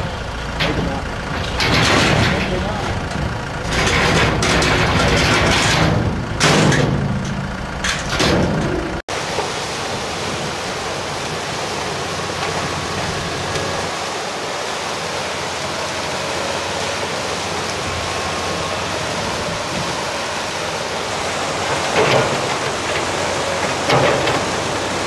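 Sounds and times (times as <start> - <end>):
river water rushing: 9.1 - 25.0.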